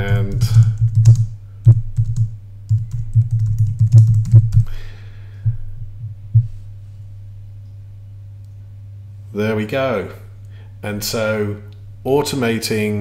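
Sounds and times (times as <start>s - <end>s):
typing on keyboard: 0.0s - 4.7s
low hum: 0.0s - 13.0s.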